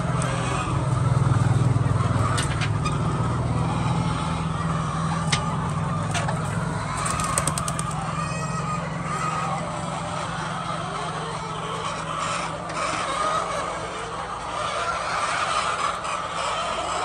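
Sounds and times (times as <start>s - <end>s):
hens clucking: 0.0s - 17.0s
sharp clicks: 7.0s - 8.0s.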